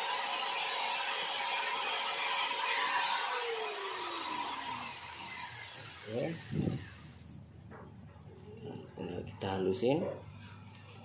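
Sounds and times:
angle grinder whining: 0.0s - 7.3s.

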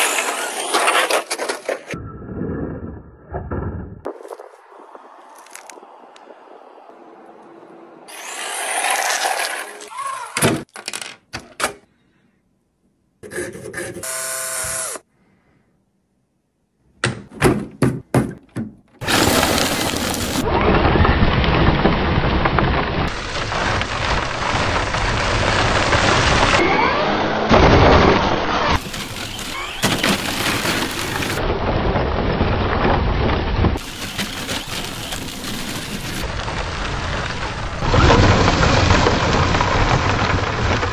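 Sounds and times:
tyres churning gravel: 19.0s - 40.9s.

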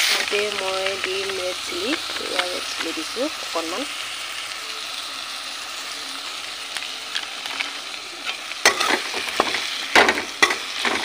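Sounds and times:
food sizzling in oil: 0.0s - 11.0s
metal spatula scraping pan: 8.6s - 11.0s.

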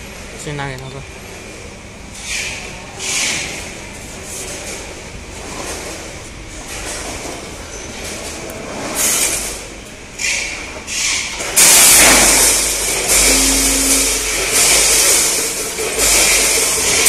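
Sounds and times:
steady tone: 12.9s - 15.6s.

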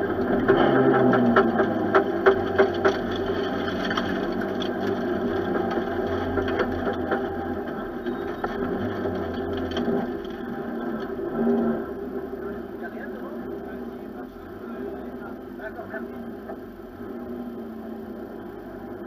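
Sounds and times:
sharp clicks and knocks: 0.0s - 11.7s
car engine running at low revs: 0.0s - 19.0s.

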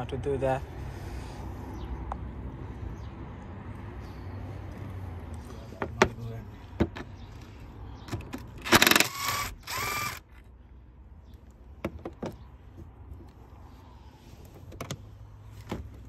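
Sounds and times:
cordless drill running: 8.6s - 10.3s.

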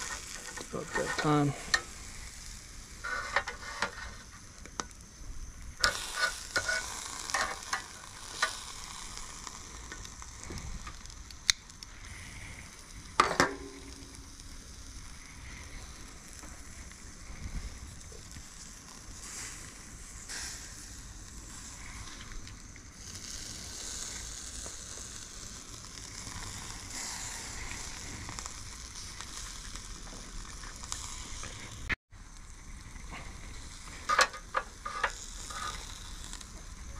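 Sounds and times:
crabs sizzling on a grill: 0.0s - 36.9s.

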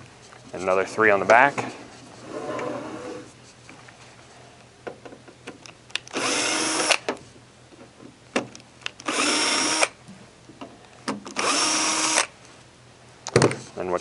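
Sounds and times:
drill driving screws: 6.1s - 7.1s, 9.0s - 10.0s, 11.3s - 12.3s.

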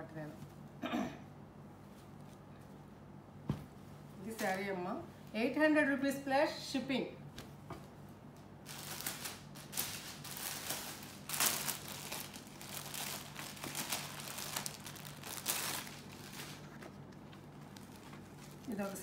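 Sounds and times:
plastic packaging crinkling: 8.6s - 19.0s.

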